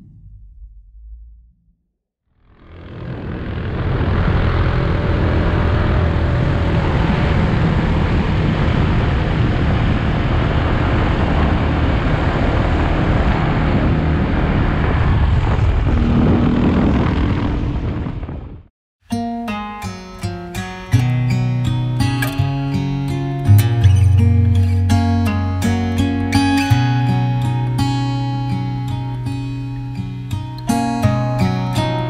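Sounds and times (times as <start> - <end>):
motorcycle engines: 2.4 - 18.4
wind rush: 2.8 - 18.7.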